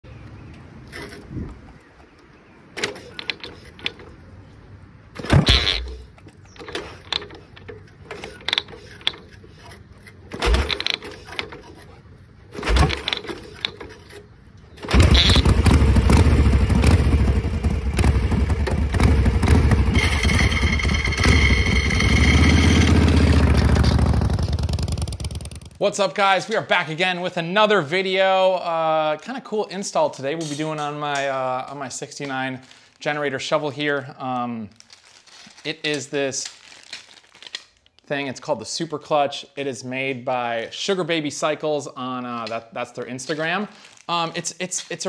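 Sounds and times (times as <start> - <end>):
motorcycle kick-start clatter: 0.9 - 1.8, 2.8 - 4.2, 5.2 - 25.8
motorcycle engine running: 14.9 - 25.8.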